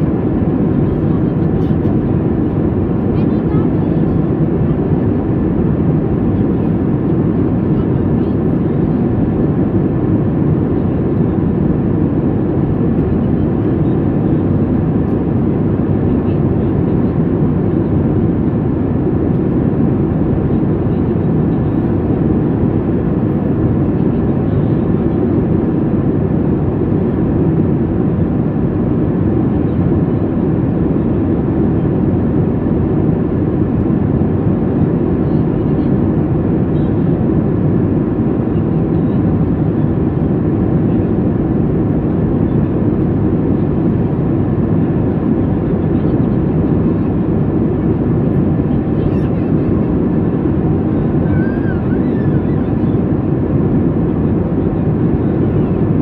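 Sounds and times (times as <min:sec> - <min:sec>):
low rumble of jet engines: 0:00.0 - 0:56.0.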